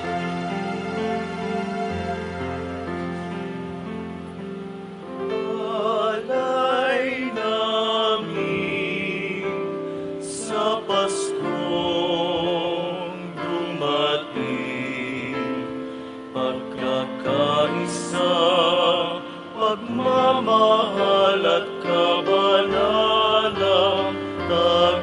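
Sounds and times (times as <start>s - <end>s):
sustained accompaniment chords: 0.0s - 7.3s
male choir singing a hymn: 5.3s - 15.8s, 16.4s - 25.0s.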